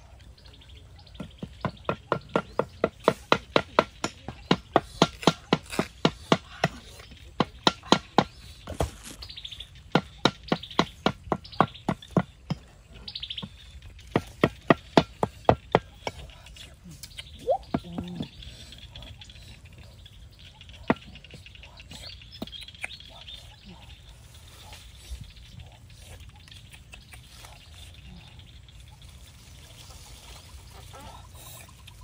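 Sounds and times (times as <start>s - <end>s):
birds chirping faintly: 0.0s - 32.0s
cleaver chopping on wooden block: 1.2s - 6.8s.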